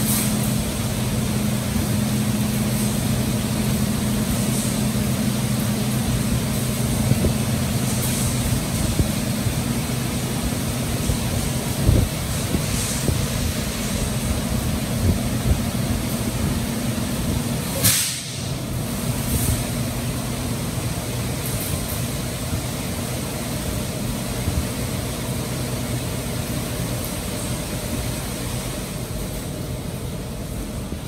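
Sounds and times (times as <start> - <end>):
mechanical hum: 0.0 - 31.0
burst of hiss: 17.7 - 19.9.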